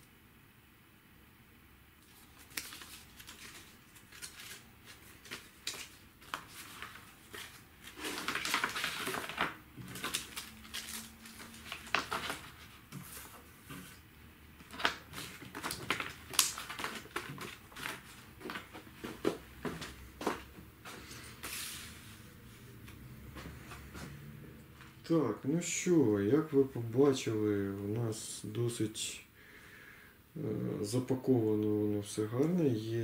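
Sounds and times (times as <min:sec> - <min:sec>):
paper rustling and crinkling: 0:02.0 - 0:14.0, 0:14.6 - 0:22.1.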